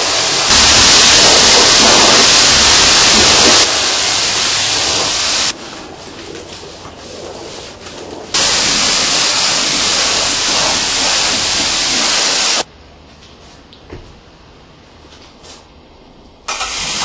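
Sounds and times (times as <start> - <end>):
pressure washer spraying water: 0.0 - 5.6, 8.4 - 12.7, 16.5 - 17.0.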